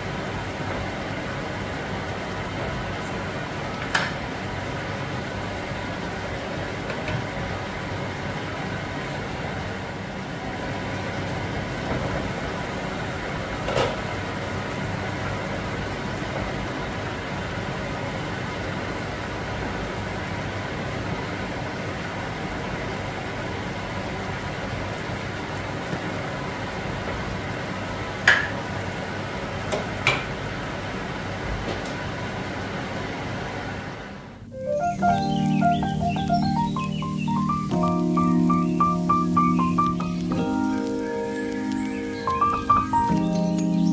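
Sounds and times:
soup boiling in a pot: 0.0s - 34.5s.

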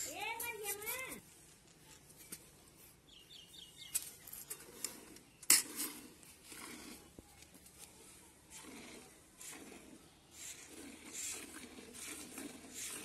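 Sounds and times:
milk squirting into steel bucket: 8.5s - 13.0s.

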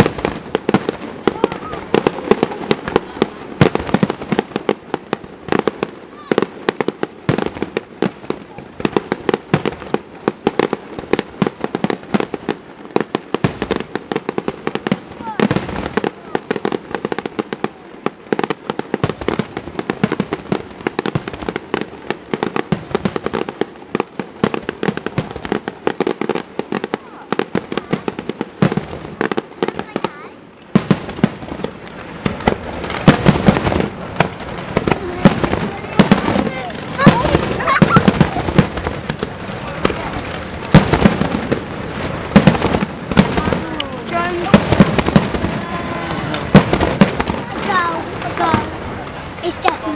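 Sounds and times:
fireworks bangs: 0.0s - 49.9s
fireworks crackle: 0.0s - 49.9s
firework shells bursting: 30.6s - 49.9s.

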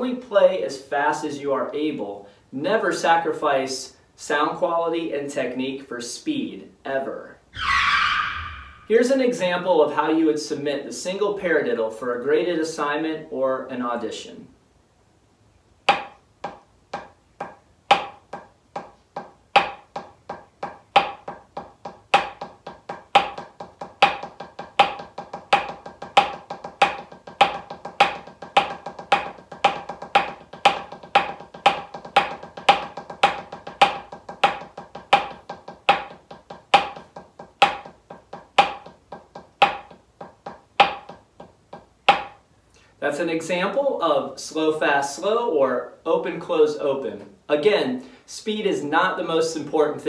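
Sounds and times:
drumsticks on practice pad: 15.9s - 42.4s.

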